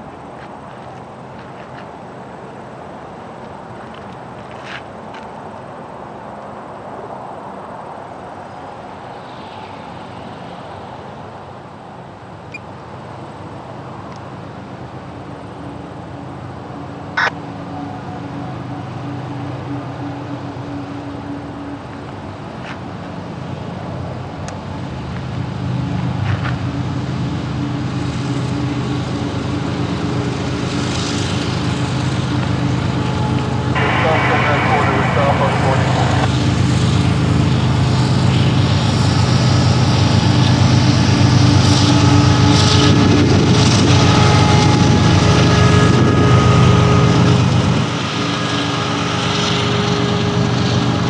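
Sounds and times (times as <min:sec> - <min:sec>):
diesel locomotive engines humming: 0:00.0 - 0:51.0
train cars rolling on rails: 0:12.4 - 0:51.0.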